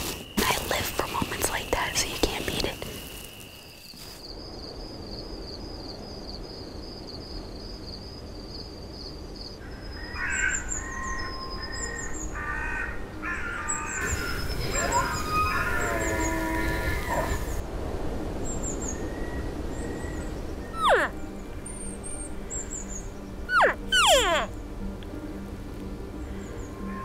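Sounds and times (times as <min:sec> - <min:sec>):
elk mewing and squealing: 0:14.0 - 0:17.6, 0:20.7 - 0:21.2, 0:23.5 - 0:24.6
thin high pulsing trill: 0:20.8 - 0:21.2, 0:23.5 - 0:24.6.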